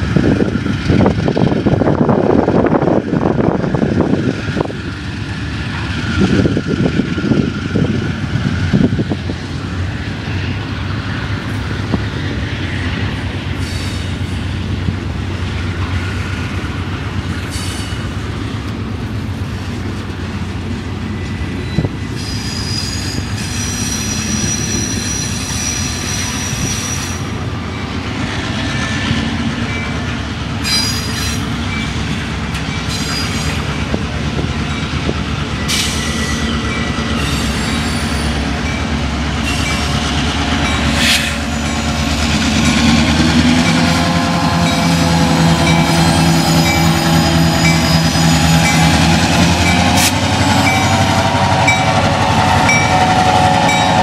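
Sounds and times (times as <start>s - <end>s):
train wheels rumbling on rail: 0.0s - 54.0s
high-pitched wheel squeal: 21.2s - 27.8s, 30.6s - 31.9s, 37.2s - 38.4s, 44.7s - 49.0s.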